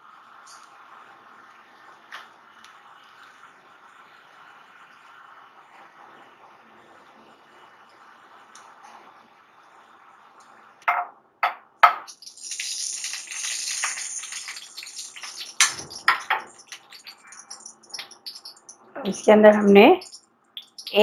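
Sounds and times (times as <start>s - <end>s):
hot ghee sizzling and crackling: 12.1s - 21.0s.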